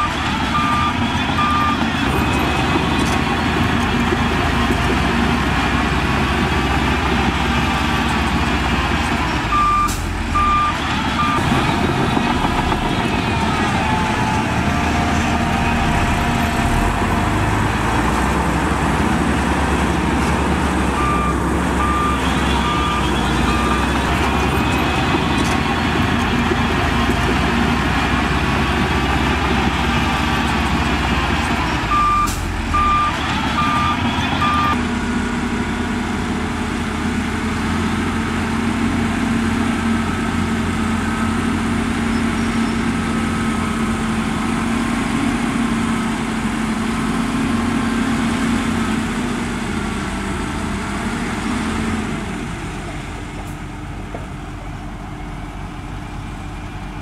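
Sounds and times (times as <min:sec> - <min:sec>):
reversing alarm beeping: 0:00.0 - 0:01.9, 0:09.5 - 0:16.9, 0:20.9 - 0:24.2, 0:31.6 - 0:34.8
heavy diesel engines running: 0:00.0 - 0:57.0.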